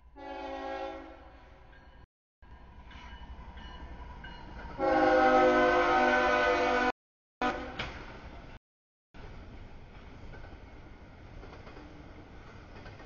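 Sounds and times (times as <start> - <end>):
train air horn blasts: 0.1 - 1.4, 4.8 - 7.8
low train rumble: 9.2 - 13.0.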